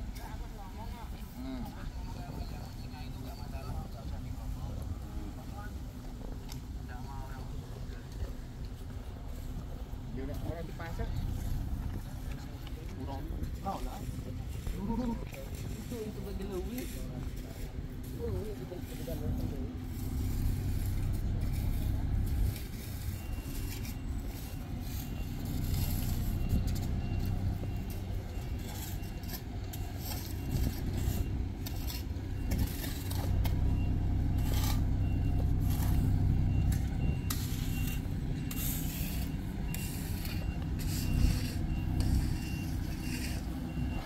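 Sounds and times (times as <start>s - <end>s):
heavy diesel vehicle rumble: 0.0s - 44.0s
reversing alarm beeping: 9.6s - 15.1s, 18.2s - 44.0s.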